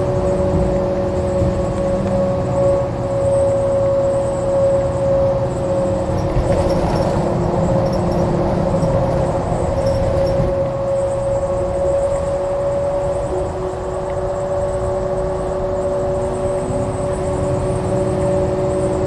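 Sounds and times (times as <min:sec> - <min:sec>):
bus engine low rumble: 0:00.0 - 0:19.0
steady hybrid drive whine: 0:00.0 - 0:19.0.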